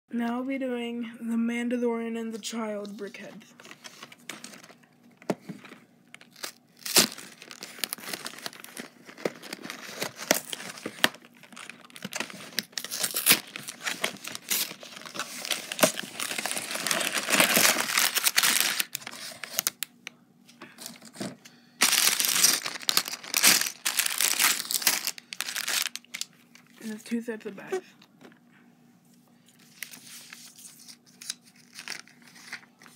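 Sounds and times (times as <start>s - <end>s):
plastic bags crinkling: 3.6s - 4.8s, 5.6s - 19.8s, 20.8s - 27.0s, 30.9s - 32.9s.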